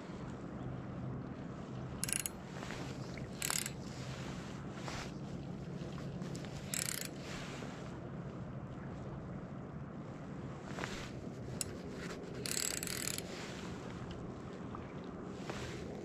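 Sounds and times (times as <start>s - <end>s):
fishing reel drag buzzing: 2.0s - 4.0s, 6.6s - 7.2s, 11.6s - 13.4s.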